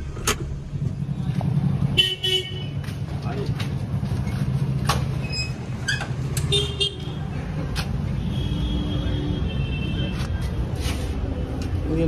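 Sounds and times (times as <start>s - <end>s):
traffic rumble: 0.0s - 12.0s
vehicle horns honking: 2.0s - 2.8s.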